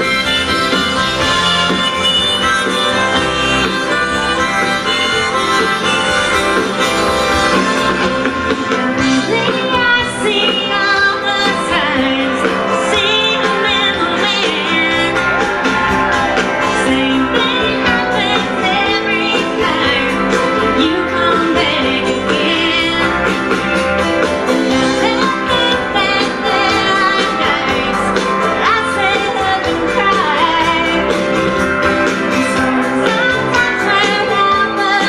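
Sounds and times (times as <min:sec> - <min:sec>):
electric bass: 0:00.0 - 0:35.0
woman singing: 0:08.6 - 0:15.4, 0:16.6 - 0:35.0.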